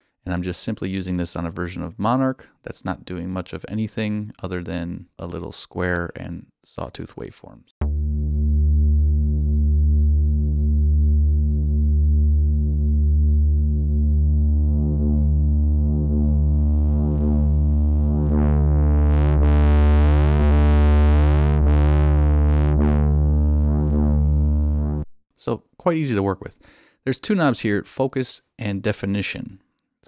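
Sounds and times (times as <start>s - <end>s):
distorted bass synth note: 7.8s - 25.1s.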